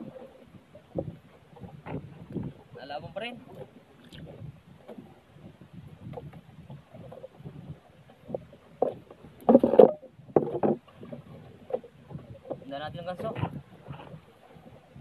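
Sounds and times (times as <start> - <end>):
water slapping against hull: 0.0 - 15.0.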